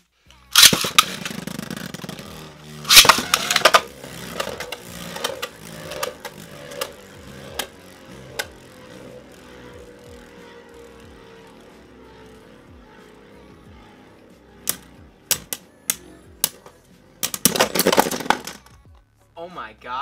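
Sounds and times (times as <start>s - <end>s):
whirring hum of spinning tops: 0.0s - 19.4s
spinning tops clashing: 0.4s - 9.3s, 14.6s - 18.8s.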